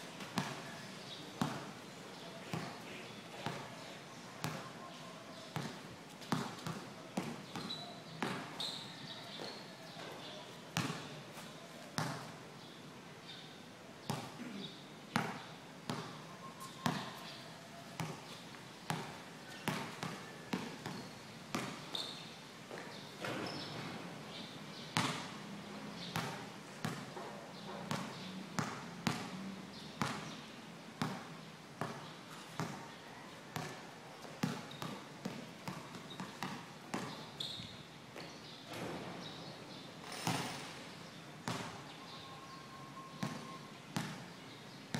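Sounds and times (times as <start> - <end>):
basketball bouncing on concrete: 0.3 - 0.6, 1.4 - 1.8, 2.5 - 2.8, 3.4 - 3.7, 4.4 - 4.7, 5.6 - 8.6, 10.8 - 11.1, 12.0 - 12.3, 14.1 - 14.4, 15.2 - 17.2, 18.0 - 18.3, 18.9 - 21.8, 25.0 - 25.3, 26.1 - 29.4, 30.0 - 30.4, 31.0 - 32.8, 33.6 - 39.1, 40.0 - 40.7, 41.4 - 41.8, 43.2 - 43.4, 44.0 - 44.2.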